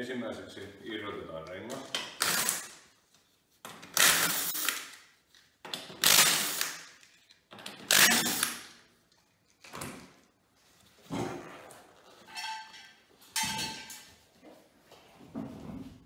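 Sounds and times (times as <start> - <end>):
power tool spinning off nuts: 7.9 - 8.6.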